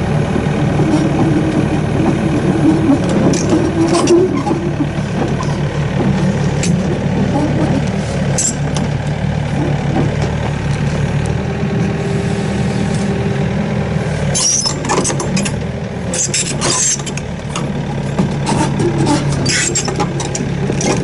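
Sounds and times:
heavy diesel engines running: 0.0 - 21.0.

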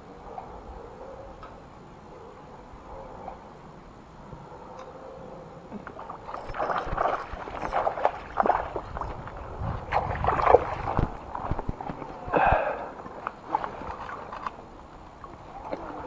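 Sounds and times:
fish splashing in water: 6.0 - 14.7.

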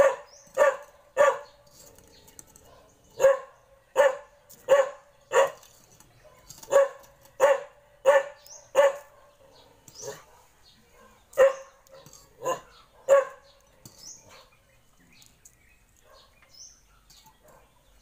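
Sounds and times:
dog barking: 0.0 - 1.5, 2.7 - 5.6, 6.2 - 13.5, 16.0 - 16.4.

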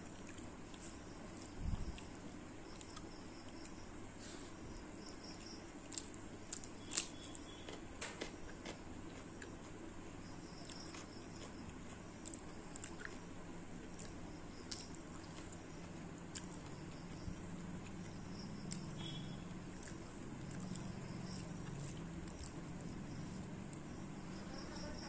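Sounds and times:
person chewing: 0.0 - 3.8, 5.4 - 7.8, 10.6 - 17.2, 19.7 - 23.9.

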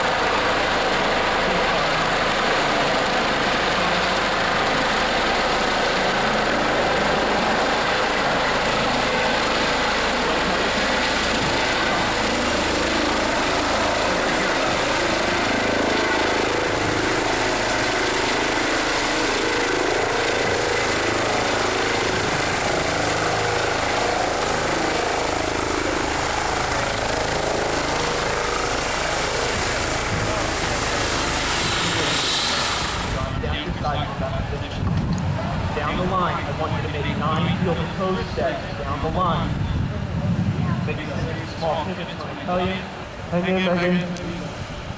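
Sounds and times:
helicopter rotor noise: 0.0 - 44.9
high turbine whine: 0.0 - 44.9.

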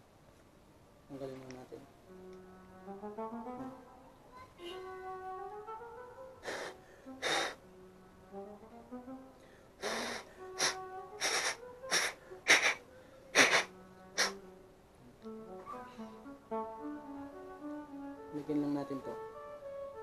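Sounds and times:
background music with brass: 2.0 - 12.8, 13.4 - 20.0
puffs of breath blowing: 6.4 - 7.6, 9.4 - 14.4.

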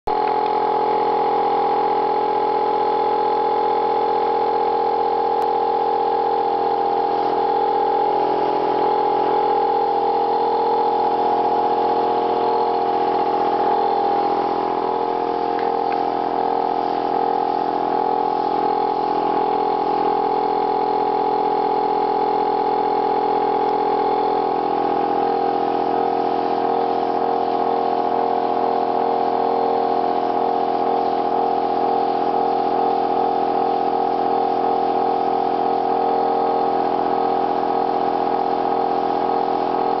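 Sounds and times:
air compressor motor hum: 0.1 - 40.0.

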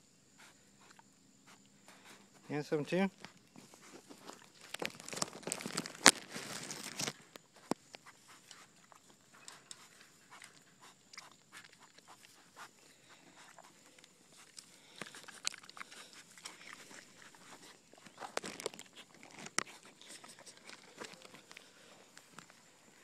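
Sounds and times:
goat crunching food: 0.4 - 23.0
close rustling: 1.4 - 23.0.

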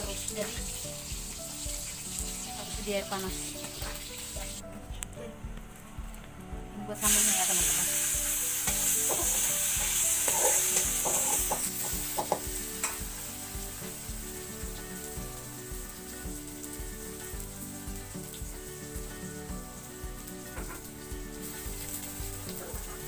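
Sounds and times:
onions sizzling in hot oil: 0.0 - 4.6, 6.9 - 23.0
utensil scraping a pan: 9.0 - 11.6.

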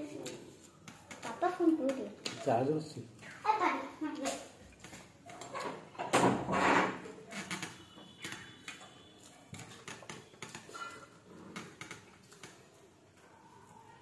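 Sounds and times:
fingers mixing rice: 7.3 - 13.9.

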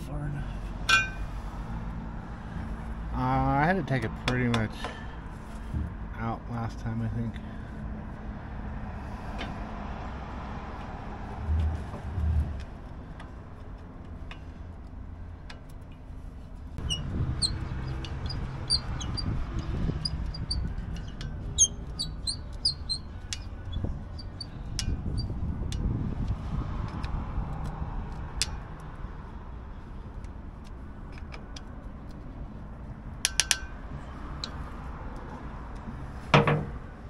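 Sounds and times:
low steady rumble: 0.0 - 27.4
small birds chirping: 16.8 - 25.3
hand tools knocking on metal: 36.3 - 36.8.

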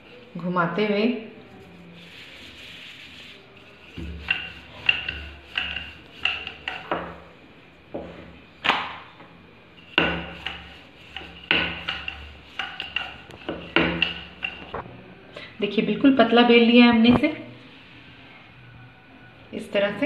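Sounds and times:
rolling pin rolling dough: 1.3 - 8.5, 9.8 - 14.8.

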